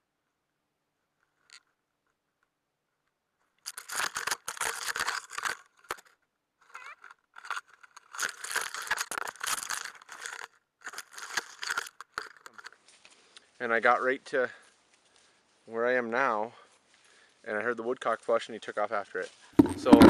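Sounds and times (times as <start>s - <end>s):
branches and leaves crunching: 12.4s - 14.0s.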